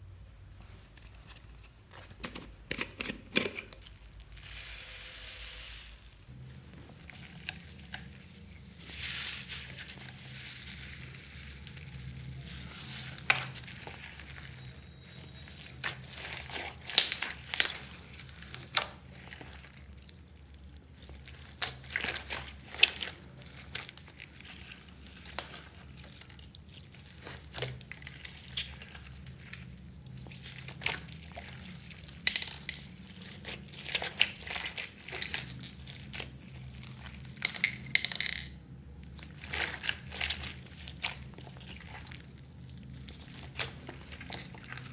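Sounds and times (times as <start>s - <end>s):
slime squishing and popping: 9.7s - 37.8s, 39.0s - 44.9s.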